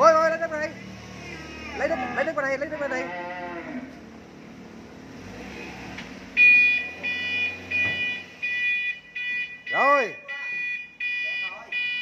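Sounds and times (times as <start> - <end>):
truck reversing beeper: 5.4 - 12.0.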